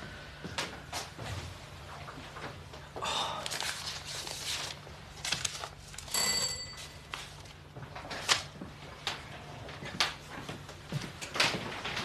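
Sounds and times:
doorbell ringing: 6.1 - 7.0.

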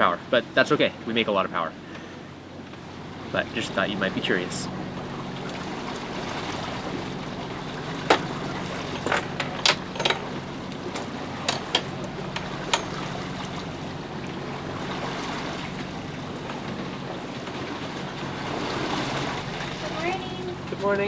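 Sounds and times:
low hum: 0.0 - 21.0
water rushing: 0.0 - 21.0
sharp clicks and knocks: 10.9 - 13.0.

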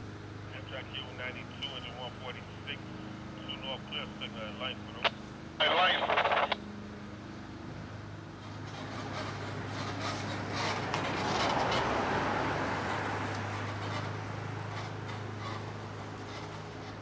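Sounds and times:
steady low hum: 0.0 - 9.3
car driving past: 8.4 - 16.9.

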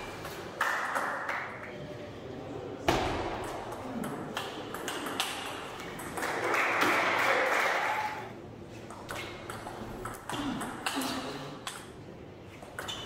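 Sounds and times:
table tennis ball hits: 2.8 - 7.8, 8.9 - 12.0.

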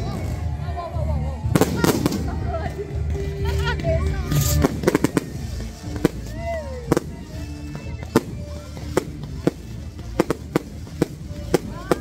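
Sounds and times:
fireworks bangs: 1.5 - 2.7, 4.4 - 12.0.

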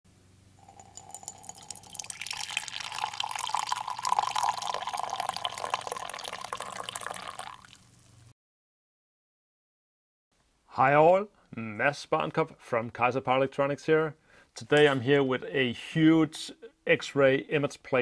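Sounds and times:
drink pouring into a ceramic mug: 0.6 - 8.0.

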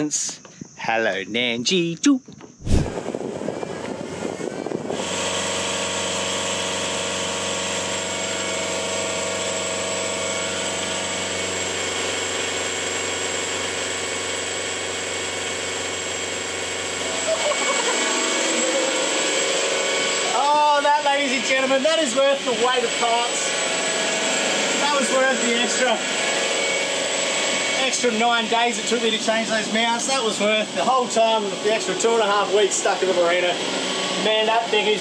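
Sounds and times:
marine diesel engine running: 2.8 - 27.9
man laughing: 17.0 - 19.1.

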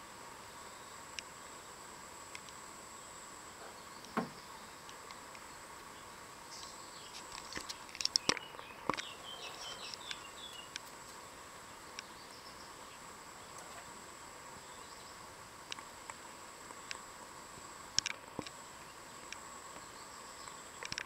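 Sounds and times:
insect drone: 0.0 - 21.0
bird chirps: 8.1 - 10.8.

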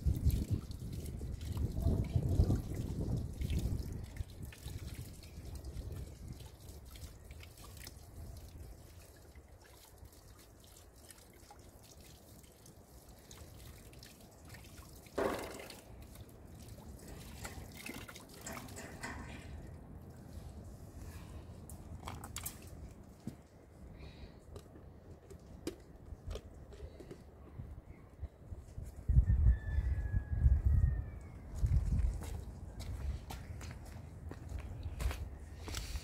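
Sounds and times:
water dripping: 0.0 - 20.5
knock or rustle: 15.2 - 15.8.

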